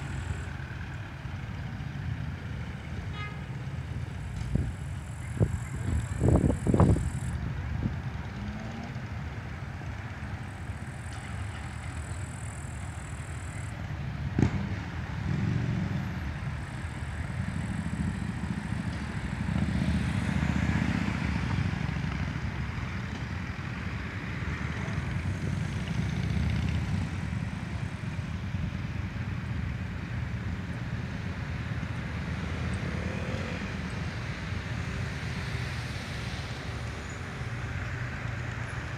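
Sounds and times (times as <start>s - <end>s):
road traffic engine rumble: 0.0s - 38.9s.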